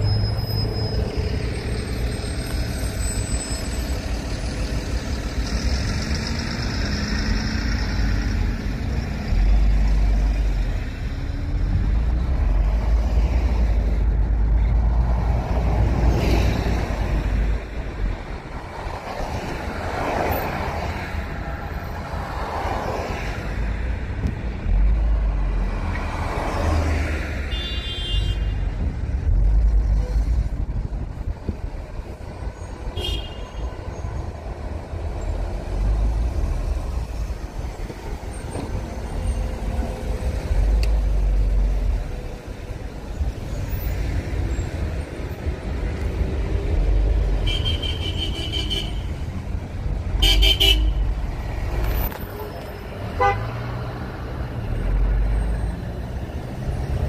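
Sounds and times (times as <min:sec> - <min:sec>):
vehicles passing rumble: 0:00.0 - 0:57.0
car horn toots: 0:50.2 - 0:51.0, 0:53.2 - 0:53.5.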